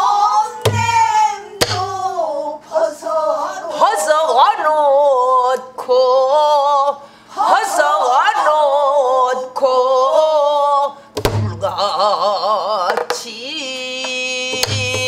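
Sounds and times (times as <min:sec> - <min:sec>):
woman singing with wide vibrato: 0:00.0 - 0:15.0
barrel drum thud: 0:00.6 - 0:02.0, 0:11.2 - 0:11.7.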